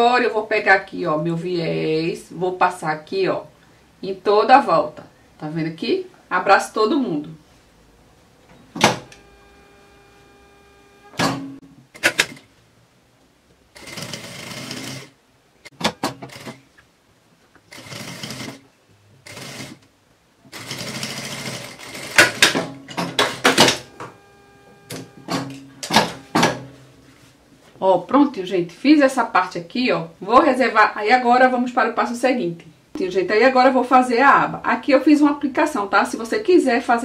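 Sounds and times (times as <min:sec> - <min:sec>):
sewing machine stitching: 0:08.7 - 0:12.5, 0:13.8 - 0:16.6, 0:17.7 - 0:18.6, 0:19.2 - 0:19.8, 0:20.5 - 0:26.7
sharp clicks and knocks: 0:15.7 - 0:16.4, 0:22.2 - 0:24.2, 0:24.8 - 0:26.7.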